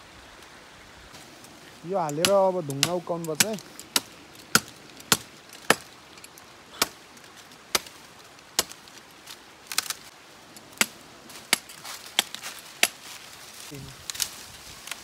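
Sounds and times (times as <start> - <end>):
blade chopping tree branch: 2.0 - 6.0, 7.7 - 8.0, 8.6 - 8.9, 10.8 - 13.1.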